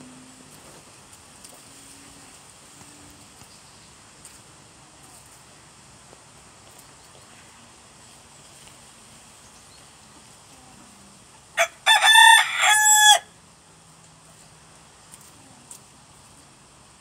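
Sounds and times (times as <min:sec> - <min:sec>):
rooster crowing: 0:11.6 - 0:13.3.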